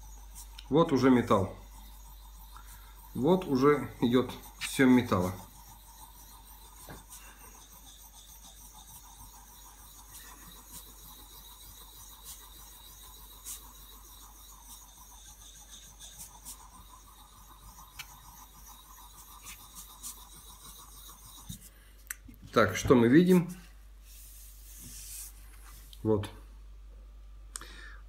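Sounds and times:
blade scraping on sharpening stone: 0:00.0 - 0:21.6.

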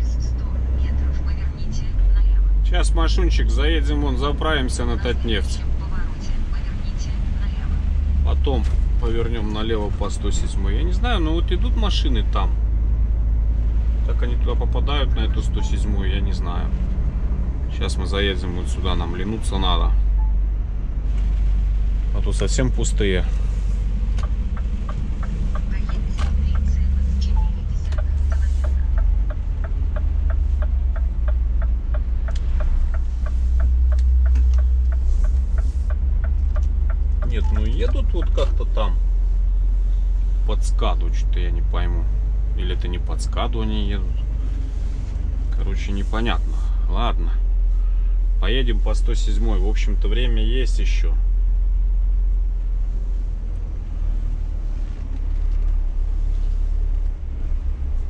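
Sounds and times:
diesel engine rumble: 0:00.0 - 0:58.0
turn signal ticking: 0:13.9 - 0:20.7, 0:23.8 - 0:40.2.

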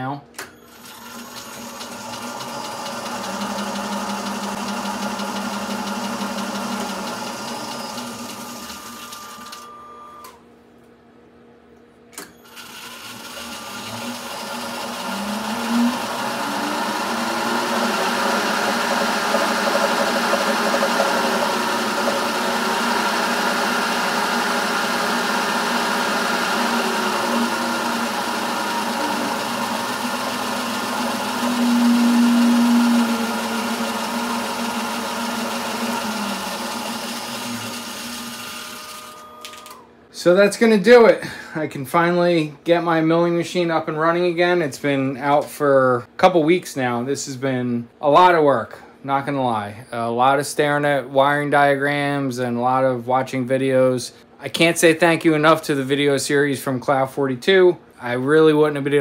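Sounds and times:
milling machine motor running: 0:00.7 - 0:10.2, 0:12.2 - 0:39.9.

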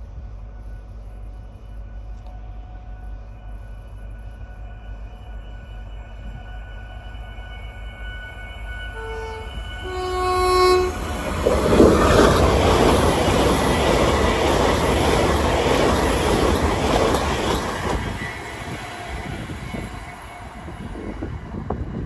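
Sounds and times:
train wheels rumbling on rails: 0:09.0 - 0:22.0.

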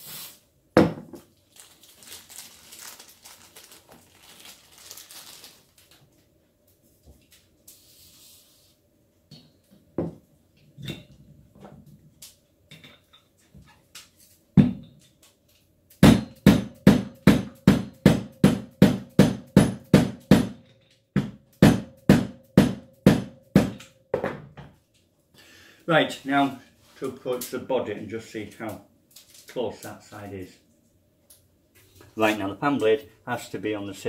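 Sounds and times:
spray oil hiss: 0:00.0 - 0:00.4
mallet beating on metal: 0:16.0 - 0:20.6, 0:21.2 - 0:24.0.

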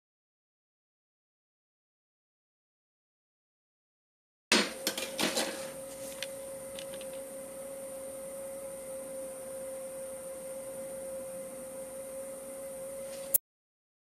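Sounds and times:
spindle whine: 0:04.5 - 0:13.4.

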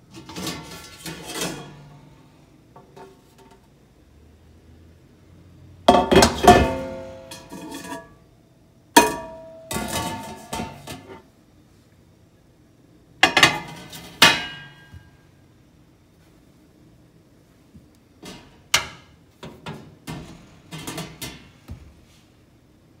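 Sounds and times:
metal basket knocking on trays: 0:05.9 - 0:07.5.

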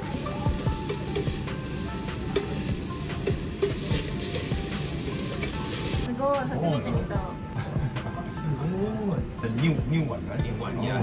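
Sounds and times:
beef sizzling on grill: 0:00.0 - 0:06.1.

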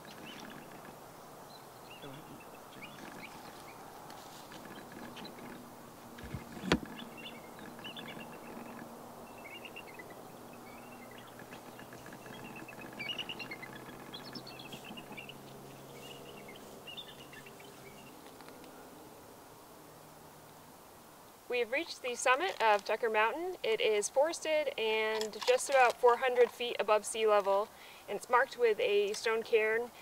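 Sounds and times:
small birds chirping: 0:00.0 - 0:18.8
distant engine drone: 0:00.0 - 0:19.0.

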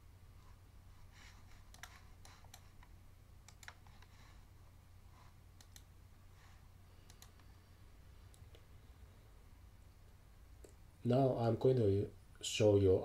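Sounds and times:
low steady hum: 0:00.0 - 0:13.0
faint computer mouse clicks: 0:01.6 - 0:04.1, 0:05.6 - 0:05.9, 0:07.0 - 0:07.5.

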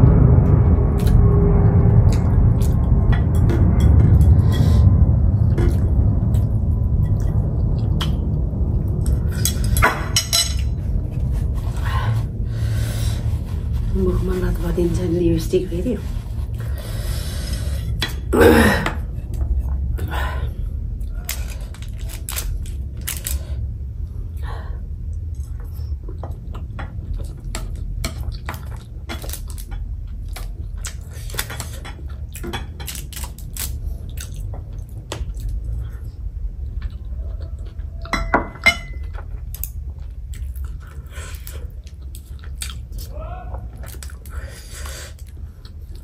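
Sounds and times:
low hum: 0:00.0 - 0:46.0
chewing: 0:25.1 - 0:38.2, 0:39.0 - 0:43.1, 0:43.7 - 0:46.0.

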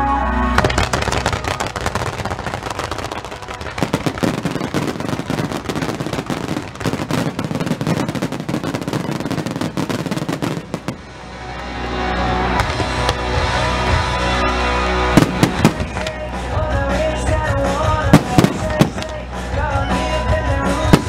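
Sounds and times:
crackling firework sparks: 0:00.6 - 0:11.0, 0:18.2 - 0:19.2
fireworks barrage: 0:00.6 - 0:11.4, 0:12.5 - 0:21.0.

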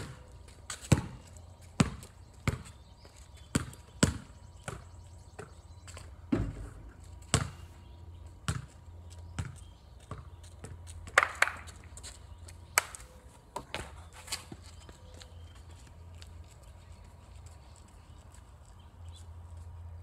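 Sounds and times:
ball bouncing on wet concrete: 0:00.0 - 0:01.2, 0:01.8 - 0:02.7, 0:03.5 - 0:05.6, 0:06.3 - 0:07.6, 0:08.5 - 0:08.8, 0:09.4 - 0:11.9
basketball hitting hoop rim: 0:06.3 - 0:07.6.

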